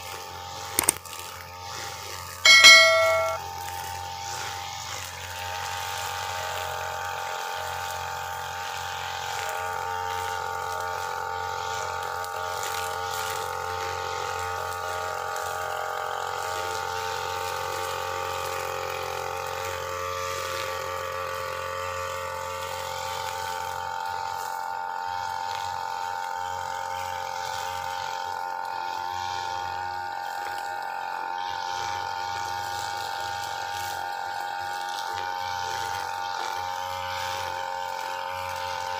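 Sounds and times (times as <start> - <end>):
trimmer line cutting grass: 0.0 - 2.4, 3.8 - 38.9
brushcutter engine whining: 26.7 - 38.9.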